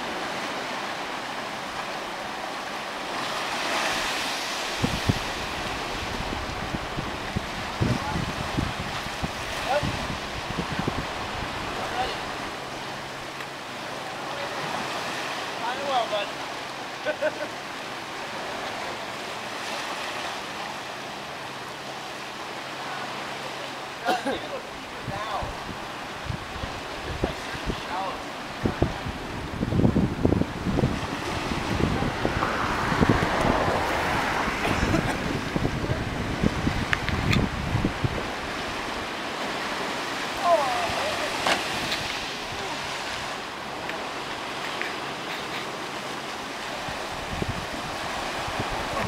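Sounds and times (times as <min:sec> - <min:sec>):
sea water washing and surging: 0:00.0 - 0:49.0
wind knocking on microphone: 0:04.8 - 0:11.1, 0:28.6 - 0:38.3.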